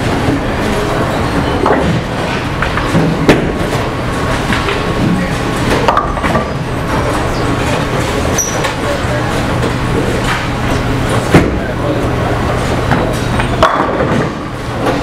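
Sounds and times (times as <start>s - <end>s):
bowling balls rolling: 12.5s - 15.0s.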